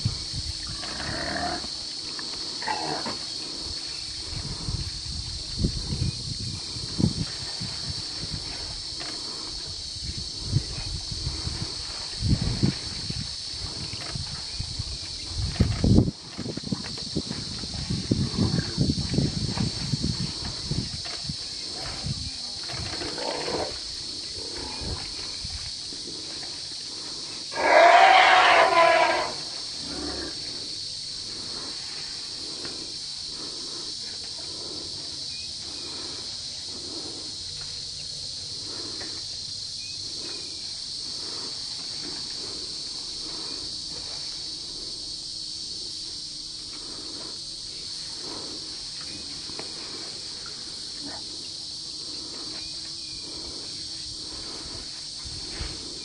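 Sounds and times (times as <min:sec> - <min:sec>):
high insect drone: 0:00.0 - 0:56.0
elephant call: 0:27.5 - 0:30.3.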